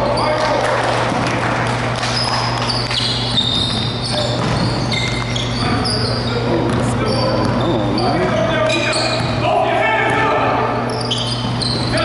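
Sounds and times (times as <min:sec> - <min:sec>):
sneakers squeaking: 0:00.0 - 0:12.0
steady low hum: 0:00.0 - 0:12.0
basketball bouncing: 0:00.9 - 0:06.0, 0:06.6 - 0:07.7.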